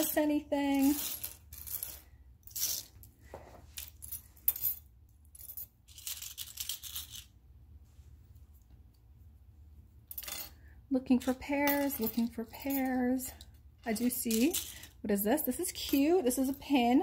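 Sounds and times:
metal jewelry clinking and jingling: 0:00.0 - 0:03.1, 0:03.7 - 0:07.3, 0:11.2 - 0:17.0.

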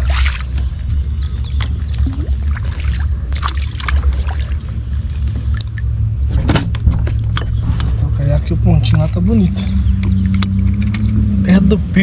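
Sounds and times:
insect drone: 0:00.0 - 0:12.0
low rumble: 0:00.4 - 0:12.0
kayak and tackle clicks: 0:10.0 - 0:11.2.

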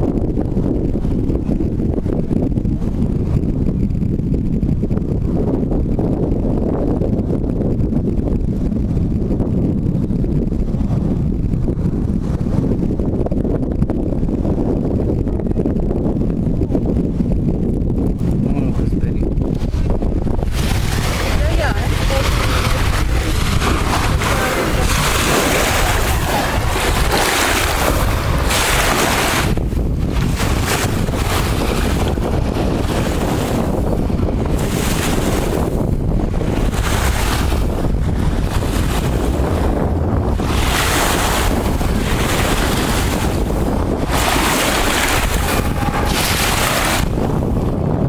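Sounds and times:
wind rumbling on microphone: 0:00.0 - 0:48.0
small waves lapping on sand: 0:20.4 - 0:29.5, 0:44.0 - 0:47.2.

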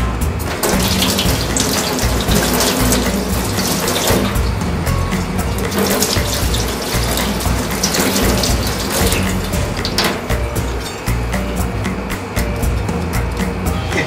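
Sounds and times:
tap water splashing into sink: 0:00.5 - 0:11.0.

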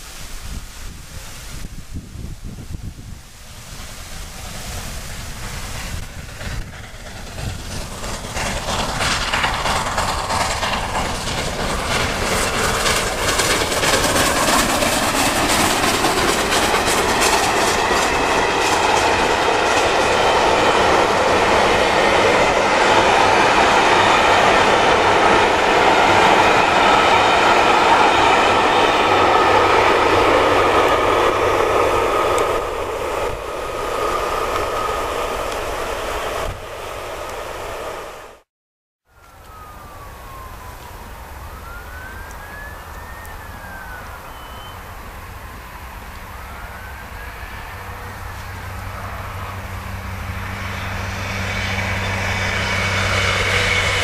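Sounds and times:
steam train passing: 0:00.0 - 0:38.5, 0:39.1 - 0:54.0
clickety-clack of train wheels: 0:03.8 - 0:38.4, 0:47.4 - 0:54.0.

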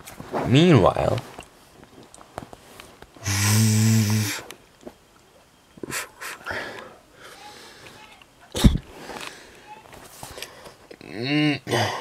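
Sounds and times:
breathy mouth noises: 0:03.2 - 0:04.5
person making buzzing hissing sound: 0:03.2 - 0:04.5, 0:05.8 - 0:06.7, 0:08.6 - 0:09.2.

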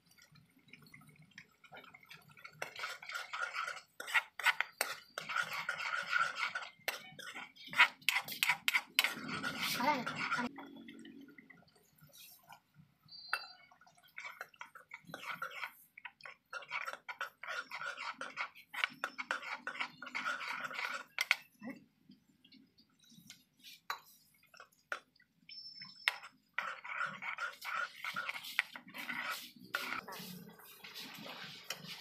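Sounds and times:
metal ladle scraping a pan: 0:02.4 - 0:10.5, 0:14.1 - 0:21.4, 0:26.0 - 0:32.0.

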